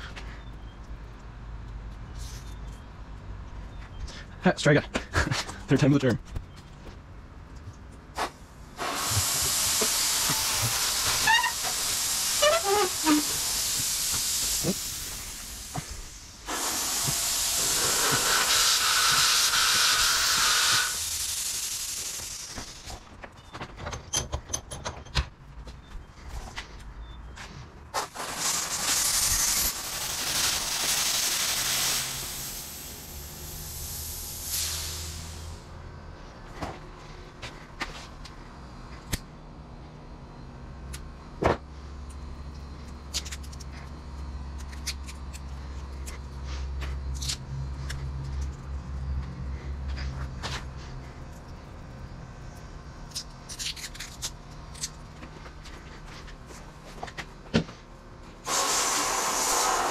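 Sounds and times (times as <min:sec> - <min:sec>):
compressed air hissing: 0:08.1 - 0:22.9, 0:27.9 - 0:35.7, 0:58.4 - 0:59.9
rubber tubing squeaks: 0:10.6 - 0:13.4.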